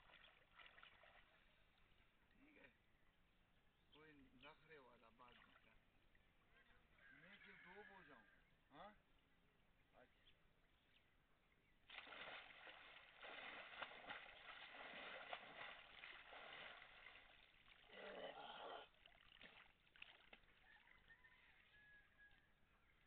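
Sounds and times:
water splashing and sloshing: 0:00.0 - 0:01.9, 0:05.2 - 0:06.5, 0:11.8 - 0:18.0, 0:18.9 - 0:21.0.

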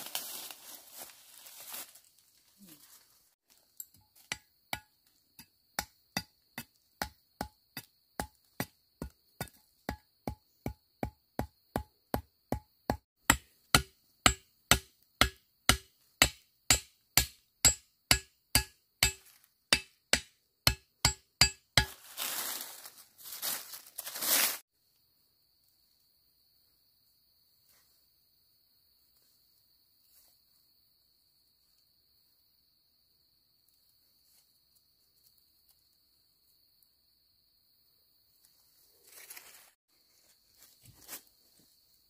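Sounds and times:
rustling: 0:00.0 - 0:03.8, 0:21.9 - 0:24.6
hand tool striking: 0:03.8 - 0:22.0.

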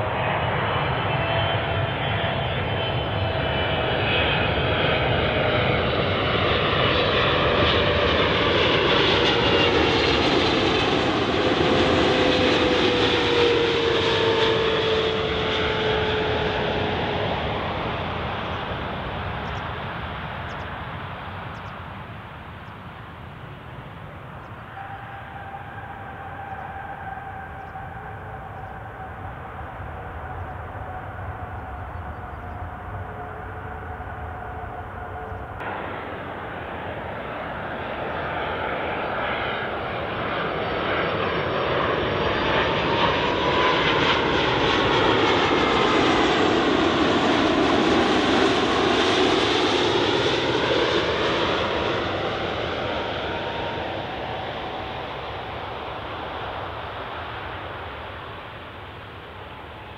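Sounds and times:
jet airliner passing with whine: 0:00.0 - 0:59.9
faint steady whine: 0:18.4 - 0:40.0.

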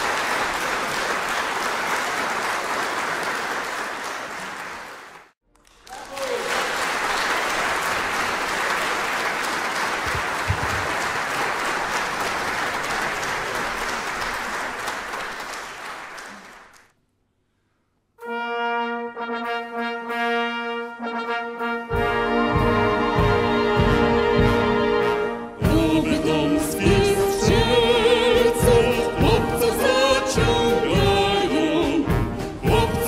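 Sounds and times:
audience applause: 0:00.0 - 0:16.9
brass band playing held chords: 0:18.2 - 0:33.0.

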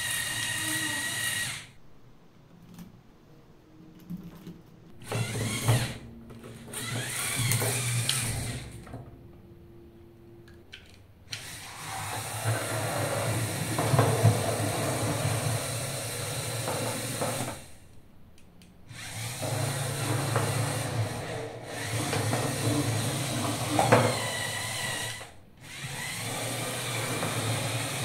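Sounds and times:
toy wheels rolling on table: 0:00.0 - 0:01.7, 0:04.1 - 0:08.8, 0:11.3 - 0:17.8, 0:19.0 - 0:28.0
toy motors whirring through gears: 0:00.0 - 0:01.8, 0:05.0 - 0:08.8, 0:11.3 - 0:17.8, 0:18.9 - 0:28.0.

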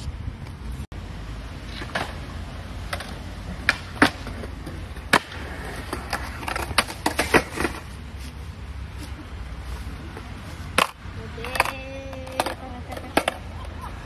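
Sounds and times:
skateboard wheels rolling on concrete: 0:00.0 - 0:14.0
skateboard wooden clacks: 0:02.8 - 0:07.9, 0:10.2 - 0:13.8.

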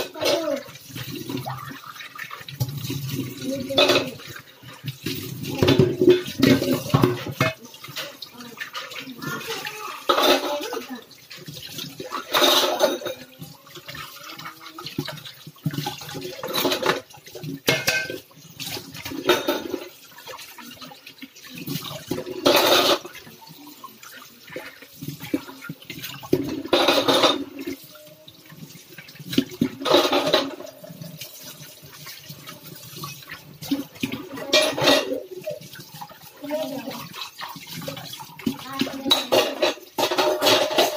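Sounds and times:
dishes clinking: 0:00.0 - 0:20.3, 0:21.7 - 0:23.3, 0:25.2 - 0:27.8, 0:29.3 - 0:32.2, 0:33.1 - 0:35.8, 0:38.5 - 0:40.9
steel bowls being rinsed: 0:00.0 - 0:40.9
water splashing in sink: 0:00.0 - 0:40.9.

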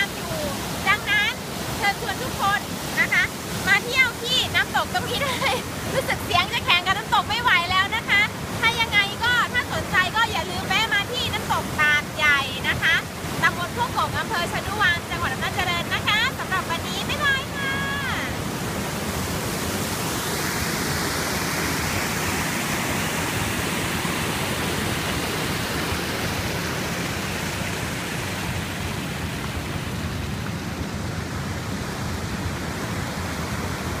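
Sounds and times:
waterfall rushing over rocks: 0:00.0 - 0:34.0.

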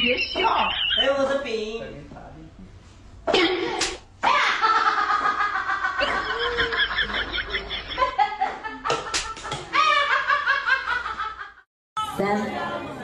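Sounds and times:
sharp slaps: 0:03.6 - 0:04.1, 0:08.5 - 0:09.8
people laughing hard: 0:04.3 - 0:11.6.

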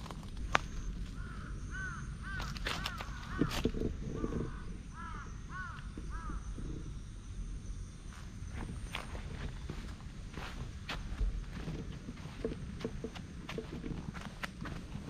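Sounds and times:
crow cawing: 0:01.1 - 0:06.6
footsteps: 0:08.2 - 0:15.0.

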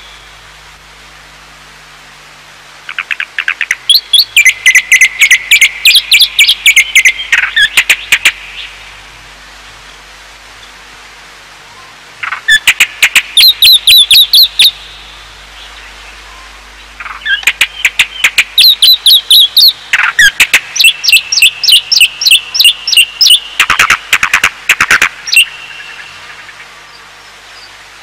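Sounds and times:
bird chirping: 0:02.9 - 0:08.9, 0:11.7 - 0:27.8.

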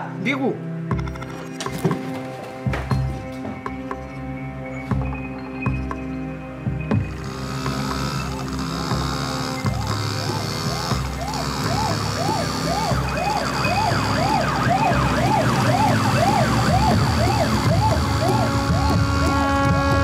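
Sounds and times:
low vehicle rumble: 0:07.0 - 0:20.0
fire engine siren wailing: 0:07.2 - 0:20.0
higher siren wails: 0:07.2 - 0:20.0.

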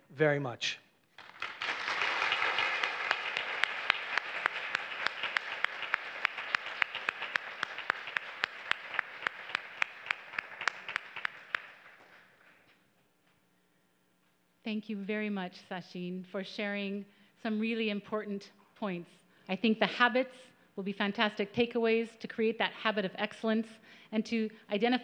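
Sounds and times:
audience applauding: 0:01.2 - 0:12.6.

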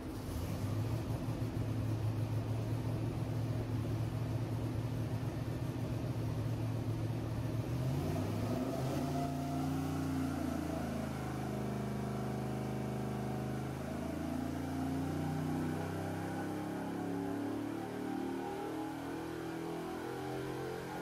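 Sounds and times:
car engine idling: 0:00.0 - 0:07.7.

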